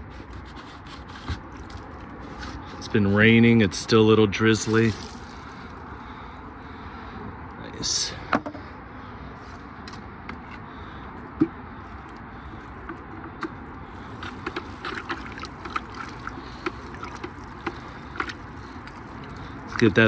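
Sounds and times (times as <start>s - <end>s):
wet sloshing: 4.6s - 5.9s, 13.8s - 20.0s
stick knocking against bucket: 14.2s - 20.0s.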